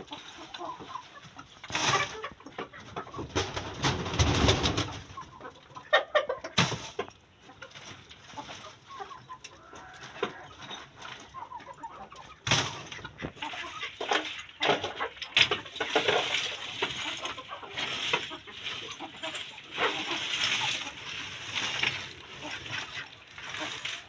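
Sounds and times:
fowl clucking: 0.0 - 3.8, 4.5 - 24.0
gravel clattering: 6.5 - 24.0
sack rustling: 15.6 - 24.0.

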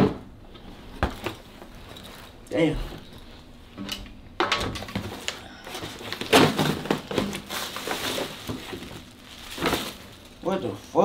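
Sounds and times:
mailer envelope rustling: 4.8 - 10.5
packaging ripping: 6.0 - 10.5.

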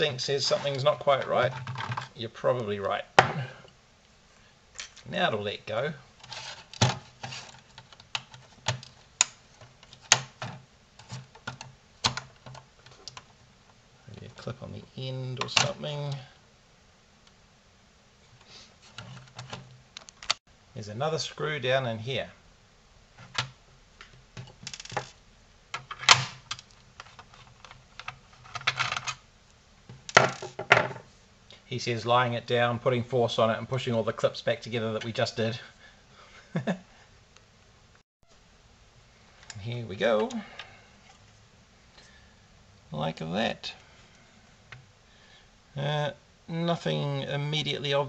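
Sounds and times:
small scrapes: 6.2 - 7.6.

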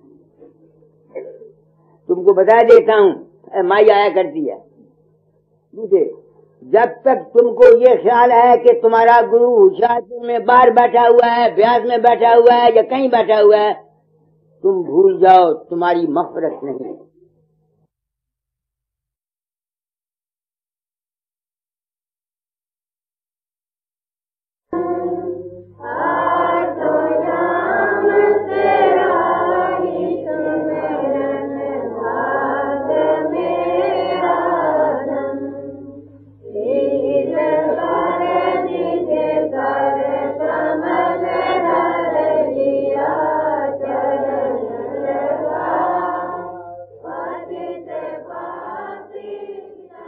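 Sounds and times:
steady low hum: 0.0 - 18.0, 24.7 - 50.0
group singing a hymn: 24.7 - 50.0.

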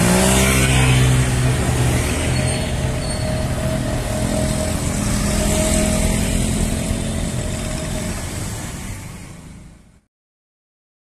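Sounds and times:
motorcycles and cars driving past: 0.0 - 10.0.

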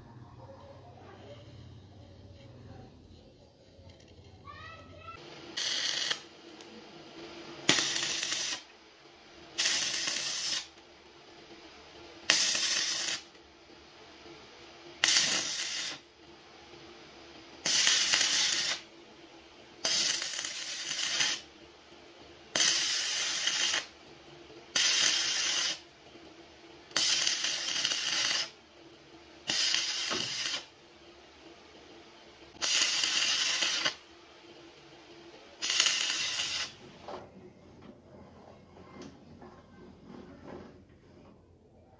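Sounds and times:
welding arc crackling and hissing: 4.5 - 8.7, 9.4 - 10.8, 11.9 - 13.4, 14.9 - 16.2, 17.6 - 18.9, 19.8 - 21.6, 22.5 - 24.0, 24.7 - 26.0, 26.9 - 28.6, 29.4 - 30.8, 32.5 - 34.1, 35.5 - 36.8.

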